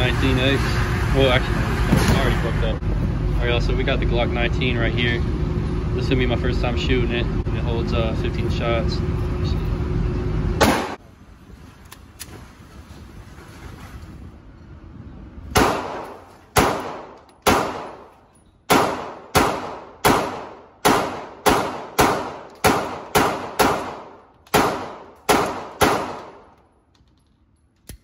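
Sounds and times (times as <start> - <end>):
pistol shots echoing indoors: 10.6 - 11.0, 15.6 - 18.1, 18.7 - 26.6.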